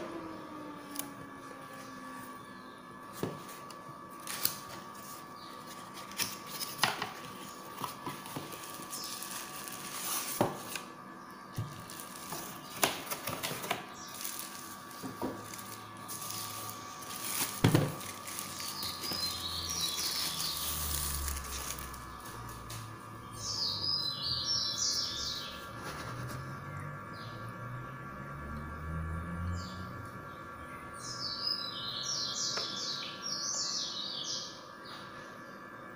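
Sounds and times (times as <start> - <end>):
plastic bag crinkling: 4.2 - 10.9, 11.6 - 22.8.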